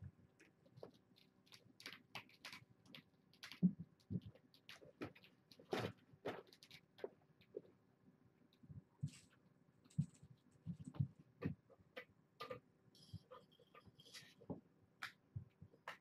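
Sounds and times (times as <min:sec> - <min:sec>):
paws thumping and scratching: 0:00.8 - 0:07.7, 0:09.9 - 0:12.6.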